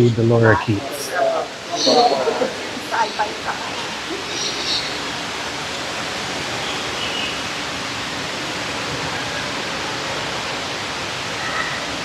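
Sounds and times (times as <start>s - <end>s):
waterfall rushing: 0.0s - 12.0s
faint short bird calls: 1.5s - 5.2s.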